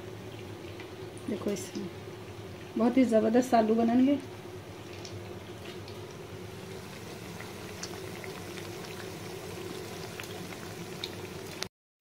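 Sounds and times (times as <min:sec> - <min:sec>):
potato slices frying in oil: 0:00.0 - 0:11.7
oil popping and crackling: 0:04.2 - 0:11.7.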